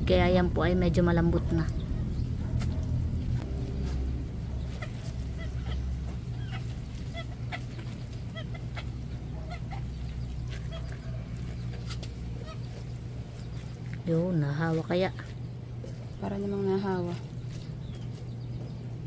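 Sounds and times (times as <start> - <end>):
low steady rumble: 0.0 - 19.0
poultry calling: 3.6 - 13.8.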